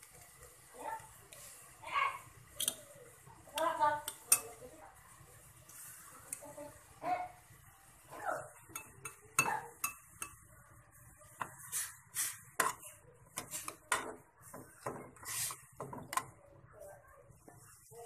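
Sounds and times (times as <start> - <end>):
metal tongs clinking in a pot: 2.5 - 2.9, 3.6 - 4.6, 8.7 - 10.4.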